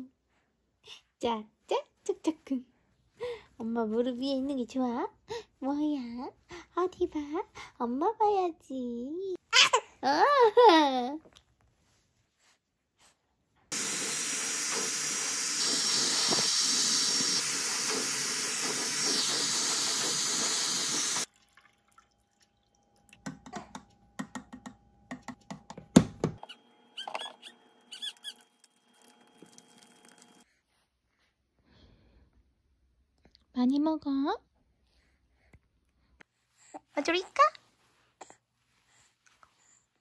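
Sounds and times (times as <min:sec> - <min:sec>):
hair styler blowing air: 0:13.7 - 0:21.3.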